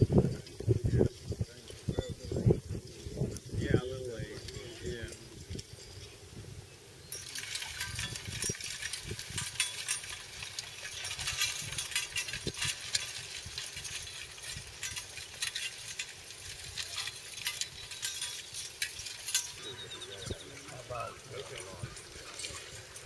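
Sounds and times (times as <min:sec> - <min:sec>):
disc harrow clicks and rattles: 0:07.2 - 0:23.0.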